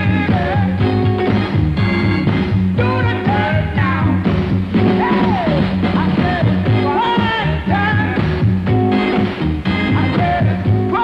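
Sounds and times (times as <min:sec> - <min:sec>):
soul band music: 0:00.0 - 0:11.0.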